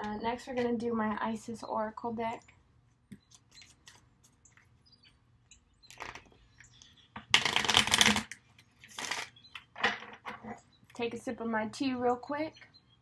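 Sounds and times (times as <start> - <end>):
cards shuffling: 7.3 - 9.3.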